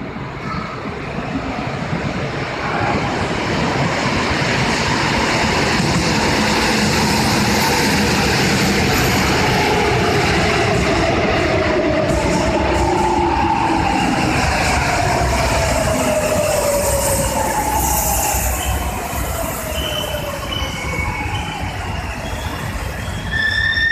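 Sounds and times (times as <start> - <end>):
electric train rumbling: 0.0 - 23.9.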